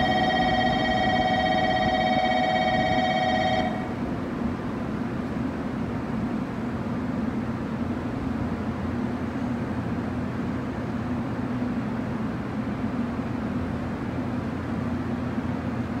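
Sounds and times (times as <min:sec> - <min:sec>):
electric train humming: 0:00.0 - 0:04.5.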